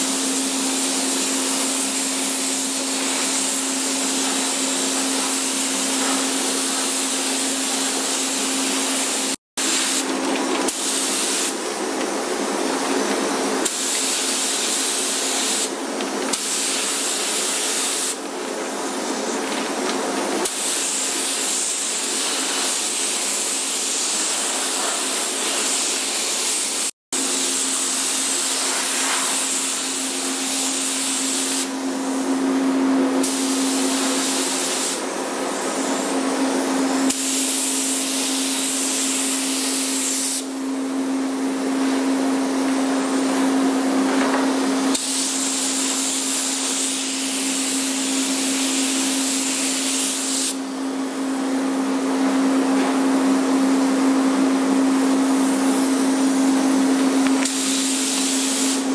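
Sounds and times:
paint spray gun hissing: 0:00.0 - 0:11.6, 0:13.6 - 0:18.2, 0:20.4 - 0:31.7, 0:33.2 - 0:35.0, 0:37.1 - 0:40.5, 0:44.9 - 0:50.6, 0:55.3 - 0:58.9.

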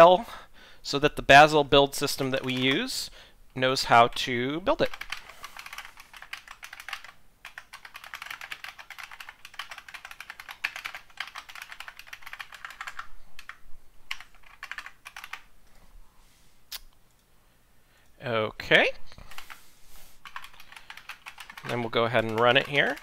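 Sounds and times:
typing on computer keyboard: 0:02.4 - 0:02.8, 0:04.8 - 0:15.5, 0:20.2 - 0:23.0.

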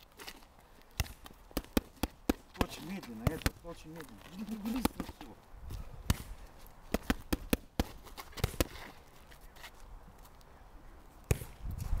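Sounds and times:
boxing gloves smacking mitts: 0:00.2 - 0:09.1.

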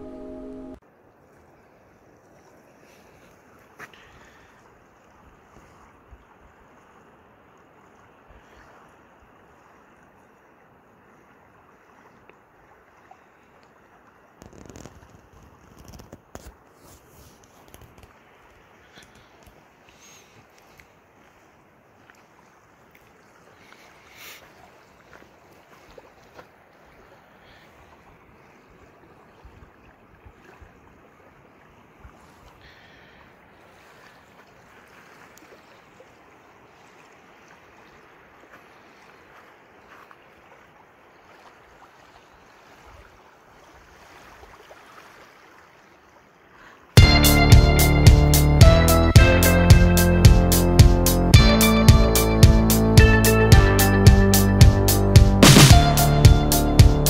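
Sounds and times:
wind: 0:00.0 - 0:57.0
waves lapping on pebble beach: 0:01.3 - 0:47.0
low thumps: 0:47.0 - 0:57.0
loud burst of noise: 0:55.4 - 0:56.1.

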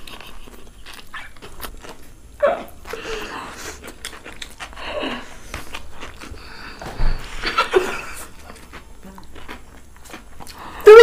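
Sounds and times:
people slurping and chewing: 0:00.0 - 0:11.0
stifled laughter: 0:07.2 - 0:08.4.

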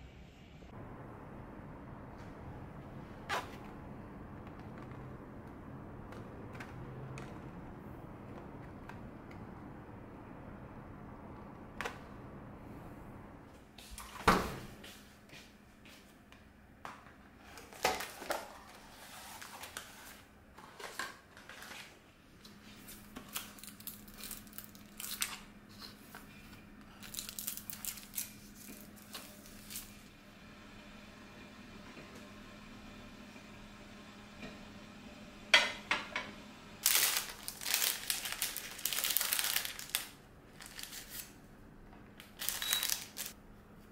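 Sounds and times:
faint steady hum: 0:00.0 - 0:43.9
paper rustling and crinkling: 0:17.4 - 0:30.0, 0:36.8 - 0:41.4, 0:42.2 - 0:43.4.

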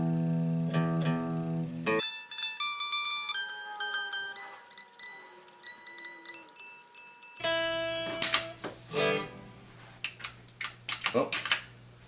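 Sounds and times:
amplified guitar strums: 0:00.0 - 0:04.7, 0:07.4 - 0:09.7
unamplified electric guitar tuning: 0:00.0 - 0:09.7
amplifier hum: 0:03.8 - 0:10.0.

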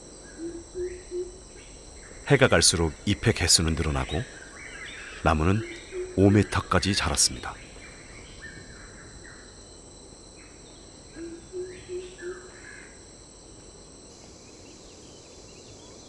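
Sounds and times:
high-pitched insect chorus: 0:00.0 - 0:16.0
bird calls: 0:00.2 - 0:09.7, 0:10.3 - 0:13.0.

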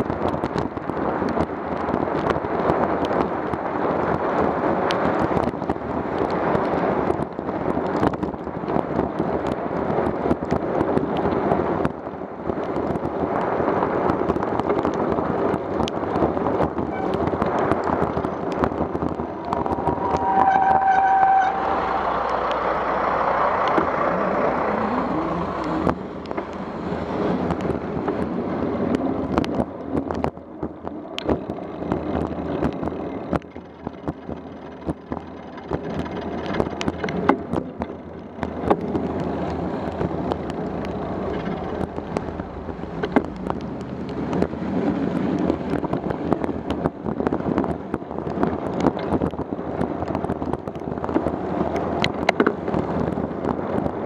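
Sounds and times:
car engines running: 0:00.0 - 0:54.0
tyres hissing on wet road: 0:14.9 - 0:29.2, 0:38.8 - 0:46.0.

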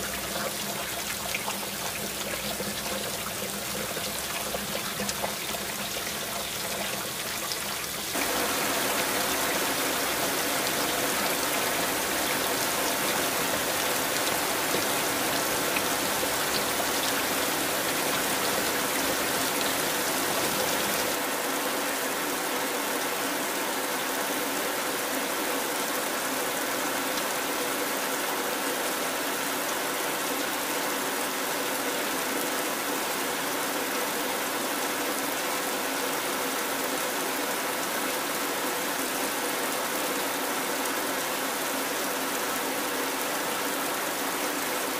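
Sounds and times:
heavy rain falling: 0:00.0 - 0:31.1.

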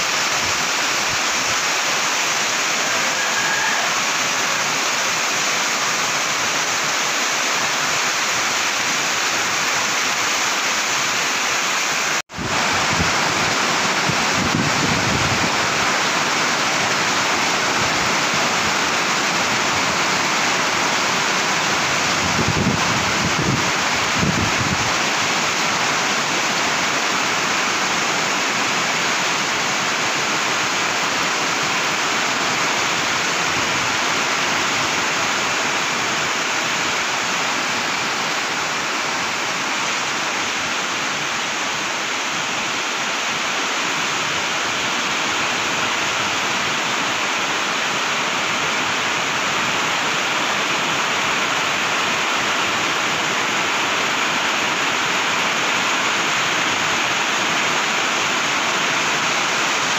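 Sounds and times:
heavy rain pouring: 0:00.0 - 0:59.9.

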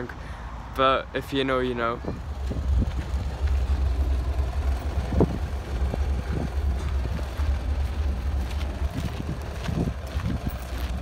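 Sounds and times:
wind blowing on microphone: 0:01.9 - 0:03.3, 0:04.8 - 0:07.5, 0:08.8 - 0:11.0.

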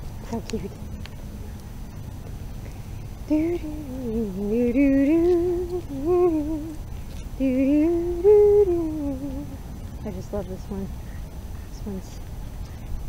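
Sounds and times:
woman humming a slow tune: 0:03.3 - 0:09.6.

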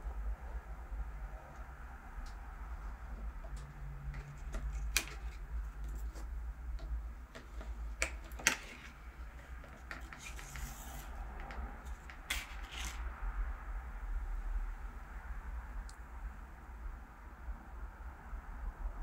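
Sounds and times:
paper sleeve scraping off blade: 0:09.9 - 0:13.0.

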